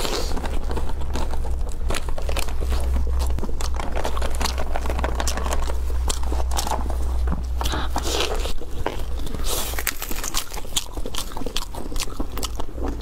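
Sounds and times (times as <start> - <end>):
dense irregular clicks: 0.0 - 7.7
chewing: 0.0 - 13.0
food crackling and tearing: 0.0 - 13.0
steady low hum: 0.0 - 13.0.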